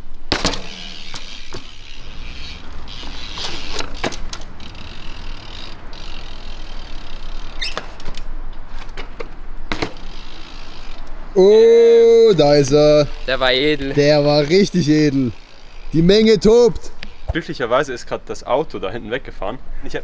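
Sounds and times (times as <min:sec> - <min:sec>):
bike tyres tapping and scuffing: 0:00.2 - 0:11.1, 0:16.6 - 0:17.6
bike landing on concrete ledge: 0:00.3 - 0:01.8, 0:02.9 - 0:04.5, 0:07.6 - 0:10.1.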